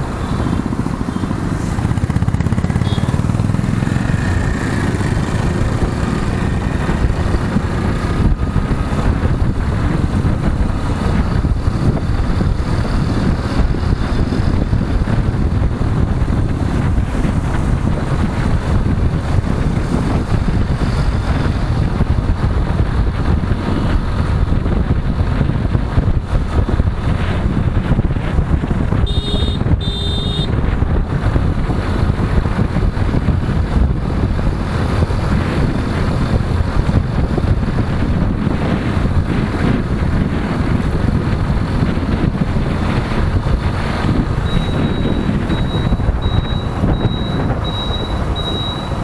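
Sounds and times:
motorcycle engine: 0.0 - 49.0
road noise: 0.0 - 49.0
wind buffeting microphone: 0.0 - 49.0
short beeps: 29.1 - 30.5, 44.4 - 49.0.

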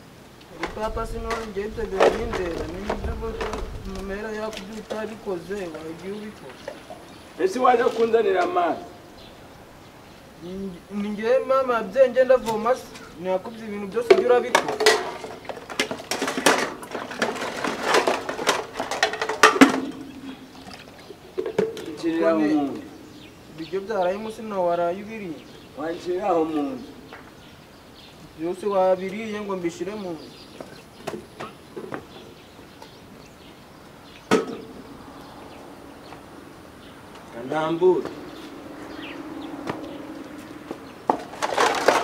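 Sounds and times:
household objects clattering: 0.6 - 7.0, 13.9 - 22.1, 40.7 - 42.0.

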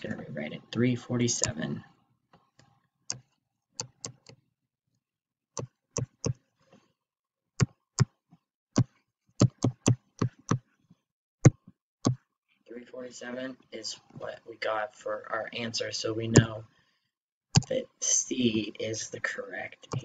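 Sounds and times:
stylus tapping on screen: 1.3 - 1.6, 2.3 - 4.4, 5.5 - 6.5, 7.6 - 12.3, 16.3 - 16.6, 17.5 - 17.7.

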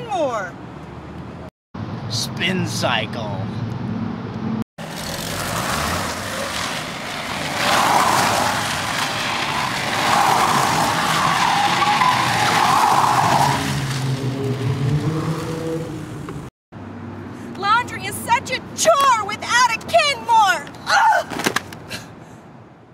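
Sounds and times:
car engine: 3.6 - 17.2
tyres squealing on asphalt: 4.8 - 16.0.

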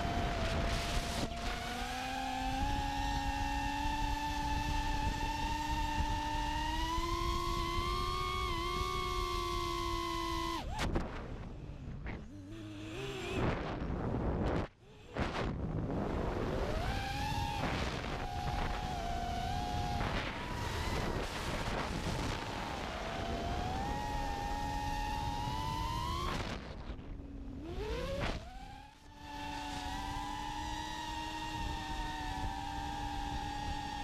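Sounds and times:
drone motors whining: 0.0 - 34.0
rushing wind noise: 13.2 - 26.8.

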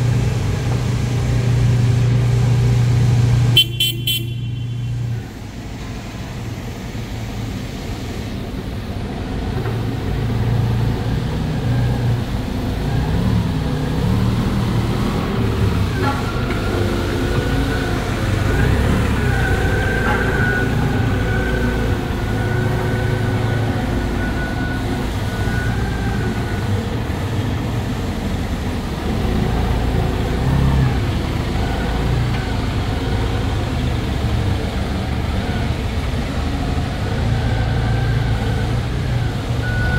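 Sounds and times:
forklift engine idling: 0.0 - 11.4.

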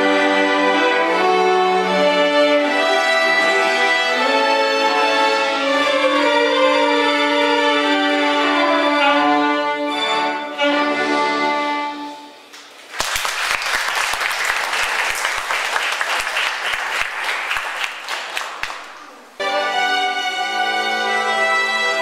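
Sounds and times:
music: 0.0 - 12.5, 19.4 - 22.0
violin and cello ensemble: 0.0 - 12.5, 19.3 - 22.0
audience applauding: 12.6 - 19.3.

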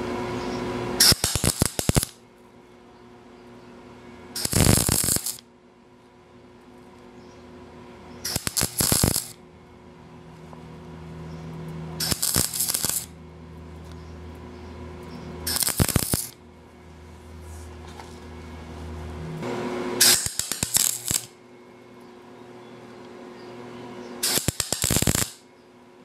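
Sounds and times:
welder arc crackling: 0.9 - 2.2, 4.4 - 5.4, 8.2 - 9.4, 12.0 - 13.2, 15.5 - 16.4, 19.4 - 21.4, 24.2 - 25.4.

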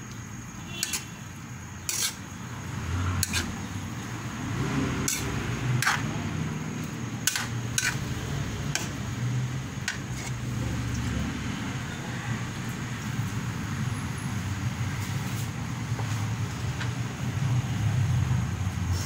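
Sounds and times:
metal spatula scraping a wok: 0.7 - 1.2, 1.8 - 2.3, 3.1 - 3.7, 5.0 - 6.1, 7.2 - 8.1, 8.7 - 9.0, 9.8 - 10.5.

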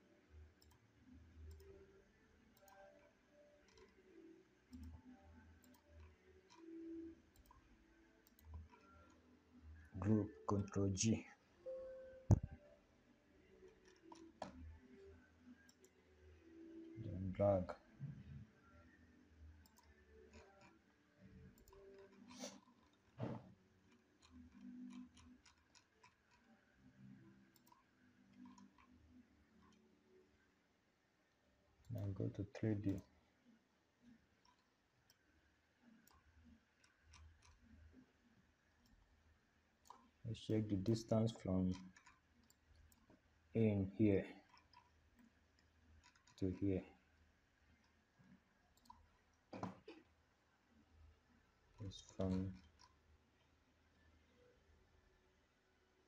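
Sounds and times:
computer mouse clicks: 0.6 - 0.8, 1.4 - 1.9, 2.5 - 9.2, 12.3 - 12.6, 13.6 - 14.8, 15.5 - 16.0, 19.6 - 20.8, 21.4 - 26.6, 27.4 - 29.8, 31.8 - 33.1, 34.1 - 38.1, 39.8 - 43.2, 44.4 - 46.8, 47.8 - 50.1, 51.8 - 53.5.

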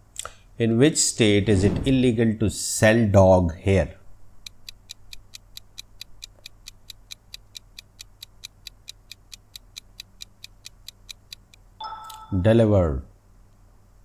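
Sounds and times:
quick timer ticks: 4.4 - 12.2.

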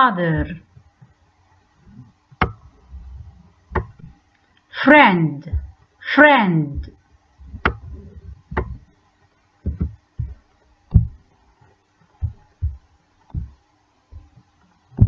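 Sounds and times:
faint steady hum: 0.0 - 15.0
mouse thumps and clicks: 2.4 - 2.8, 3.7 - 4.2, 7.5 - 8.9, 9.6 - 11.2.

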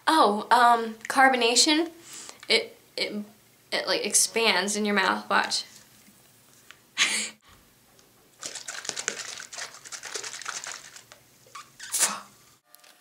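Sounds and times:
soda fizzing crackle: 8.4 - 12.0.

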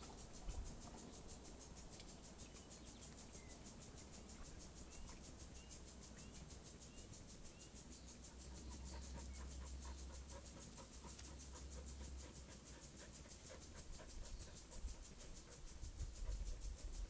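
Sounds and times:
dog panting: 8.1 - 17.0.

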